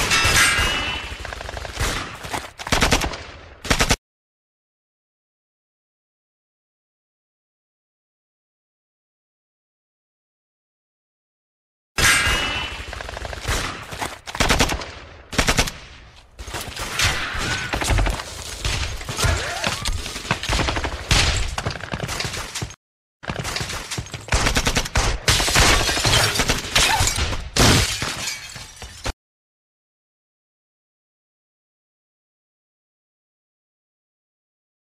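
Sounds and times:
heavy automatic gunfire: 0:20.2 - 0:22.4.

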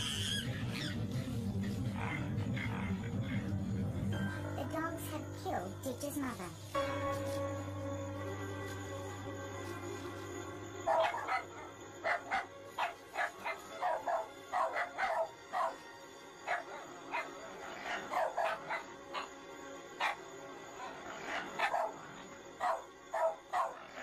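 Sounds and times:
background music: 0:00.0 - 0:24.0
dog barking: 0:10.8 - 0:19.4, 0:20.0 - 0:24.0.

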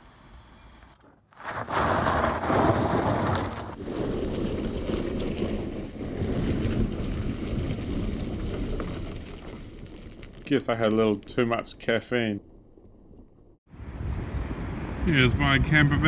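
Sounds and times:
tyres crunching on gravel: 0:00.6 - 0:12.0
wind buffeting microphone: 0:13.7 - 0:16.0.

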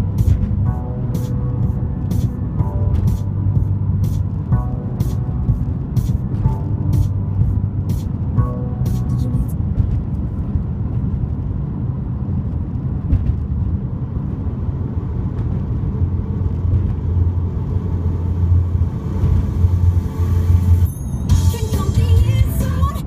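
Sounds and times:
car road noise rumble: 0:00.0 - 0:23.0.

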